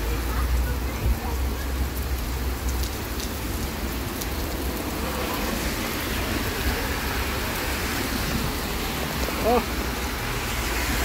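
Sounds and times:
heavy rain on street: 0:00.0 - 0:11.0.

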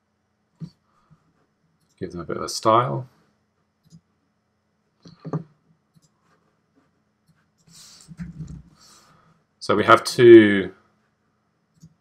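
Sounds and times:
soft breath: 0:00.7 - 0:01.5, 0:07.7 - 0:09.5.

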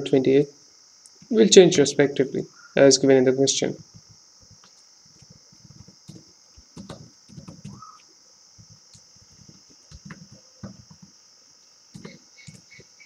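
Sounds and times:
steady high hiss: 0:00.0 - 0:13.0
keyboard typing: 0:03.8 - 0:08.0, 0:08.6 - 0:11.1, 0:11.9 - 0:12.8.

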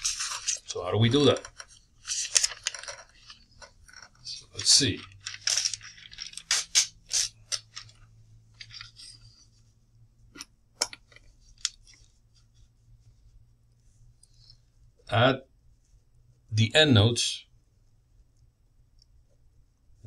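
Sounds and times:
paper rustling and crackling: 0:00.0 - 0:09.4.

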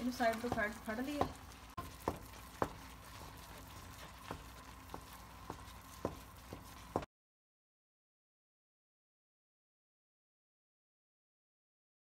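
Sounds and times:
spatula tapping a pan: 0:00.0 - 0:07.1.

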